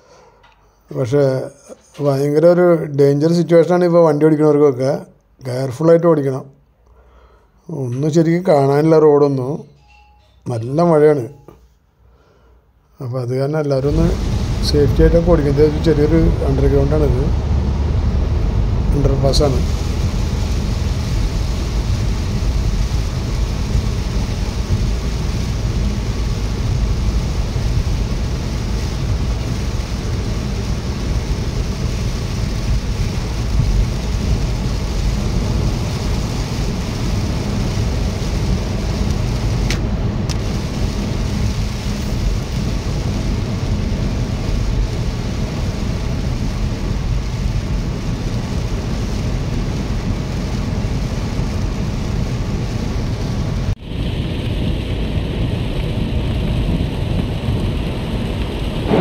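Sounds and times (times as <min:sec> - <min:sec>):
hiss of rain and spray: 0:00.0 - 0:00.4, 0:13.7 - 0:59.0
tyre and engine rumble: 0:13.8 - 0:29.2.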